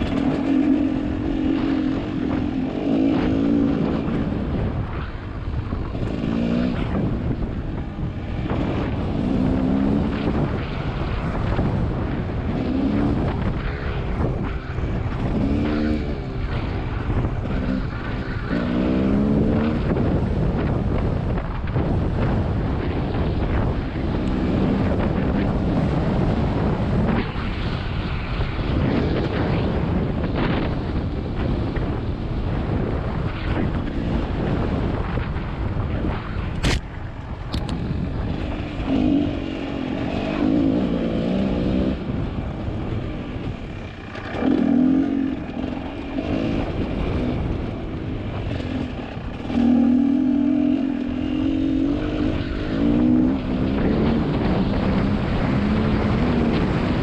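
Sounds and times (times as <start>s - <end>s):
dirt bike engine revving: 0.0s - 4.7s, 5.8s - 20.7s, 38.3s - 42.5s, 43.6s - 57.0s
wind on microphone: 0.0s - 57.0s.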